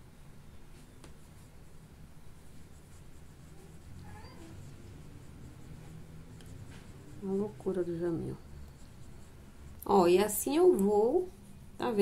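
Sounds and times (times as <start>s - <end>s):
low steady hum: 0.0s - 12.0s
paintbrush dabbing on paper: 0.8s - 11.6s
faint high cry: 3.6s - 4.7s.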